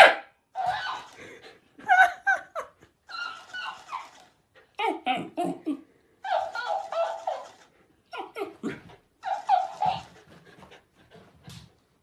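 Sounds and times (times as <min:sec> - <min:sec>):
dog yipping and woofing: 0:00.0 - 0:01.2, 0:03.1 - 0:04.2, 0:06.2 - 0:10.3.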